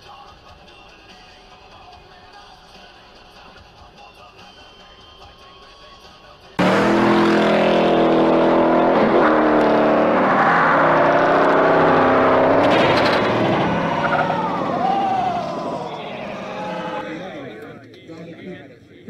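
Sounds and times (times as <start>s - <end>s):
car engine revving hard: 6.6s - 17.0s
car crash impact: 10.9s - 17.0s.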